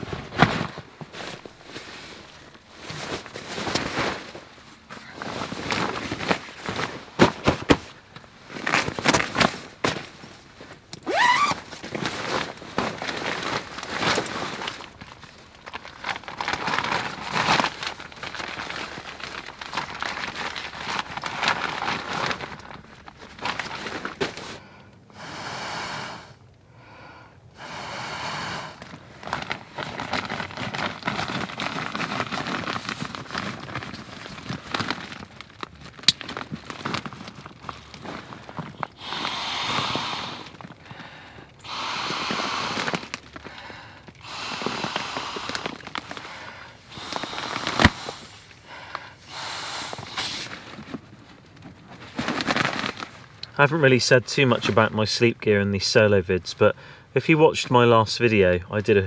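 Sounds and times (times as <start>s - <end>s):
fabric rustling and crinkling: 0.0s - 24.6s, 28.8s - 49.3s, 49.9s - 55.5s
short steady hisses: 39.0s - 40.5s, 49.2s - 50.5s.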